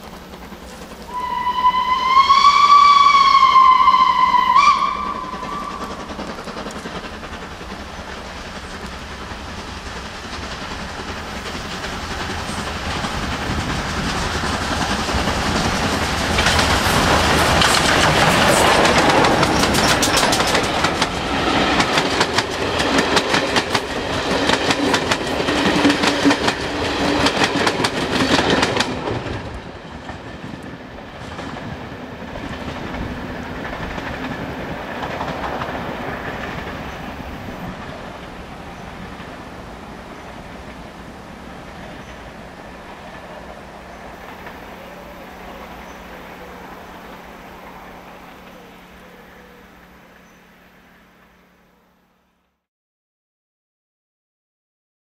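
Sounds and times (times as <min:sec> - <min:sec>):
train passing: 0:00.0 - 0:52.4
steam locomotive whistle: 0:01.1 - 0:06.3
wheels clattering over rail joints: 0:04.1 - 0:41.0.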